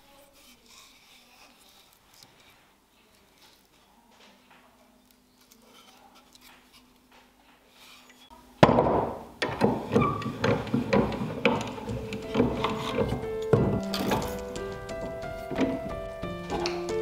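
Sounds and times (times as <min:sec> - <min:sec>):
faint handling sounds: 0:00.0 - 0:08.4
rhythmic background music: 0:10.6 - 0:17.0.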